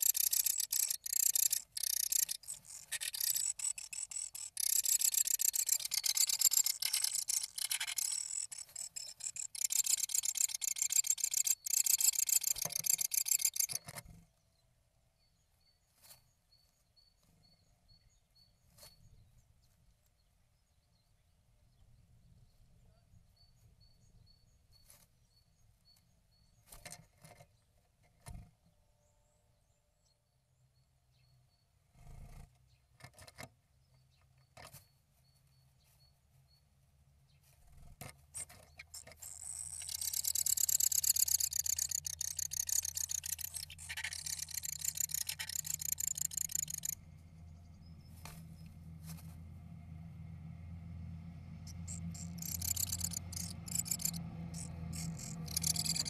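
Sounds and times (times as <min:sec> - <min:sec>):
high-pitched buzzing rattle: 0:00.0 - 0:13.8, 0:38.4 - 0:47.2, 0:51.6 - 0:56.0
birds scratching and tapping on wood: 0:00.0 - 0:14.2, 0:26.6 - 0:28.6, 0:31.9 - 0:35.0, 0:37.4 - 0:47.0, 0:51.7 - 0:56.0
low steady hum: 0:39.5 - 0:56.0.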